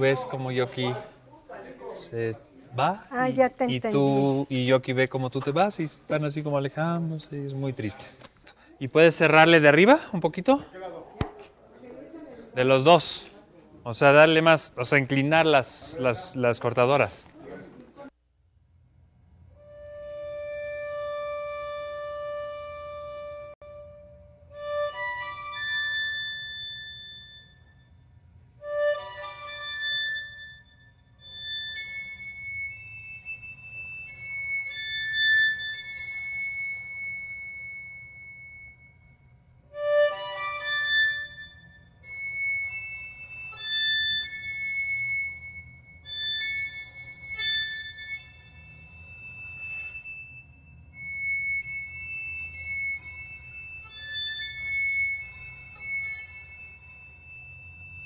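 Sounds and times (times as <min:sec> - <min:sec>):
slow high-pitched instrumental melody: 0:19.6 - 0:28.0, 0:28.6 - 0:58.0.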